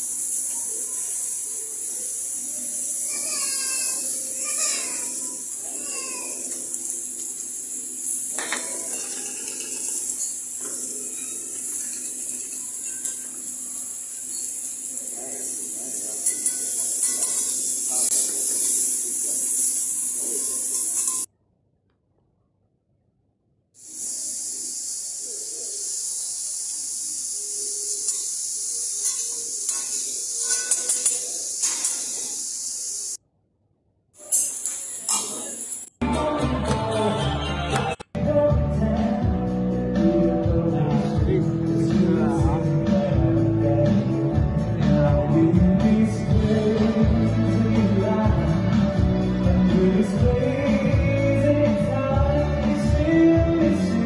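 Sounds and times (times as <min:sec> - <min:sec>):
meat sizzling on a griddle: 0:00.0 - 0:21.3, 0:23.8 - 0:33.2
metal utensils clinking: 0:03.4 - 0:21.3, 0:27.5 - 0:33.0, 0:34.2 - 0:35.9
metal spatulas scraping: 0:16.1 - 0:19.0, 0:29.0 - 0:32.1, 0:34.2 - 0:35.7.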